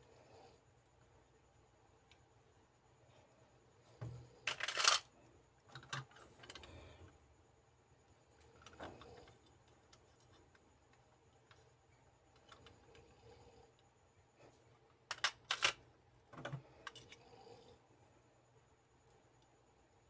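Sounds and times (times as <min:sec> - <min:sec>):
plastic capsules clicking and rattling: 0:04.5 - 0:05.1, 0:15.1 - 0:15.8.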